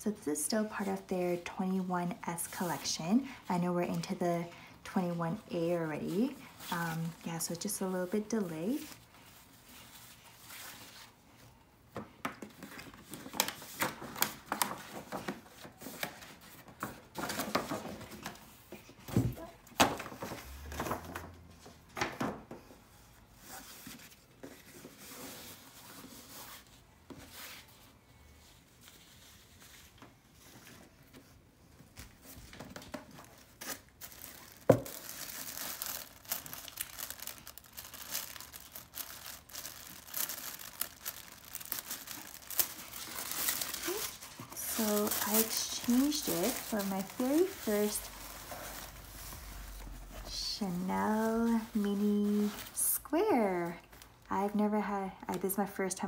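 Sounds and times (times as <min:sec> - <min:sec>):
paper and ribbon rustling: 0:00.4 - 0:11.5, 0:23.0 - 0:54.3
tissue paper crinkling: 0:04.9 - 0:11.4, 0:32.0 - 0:54.3.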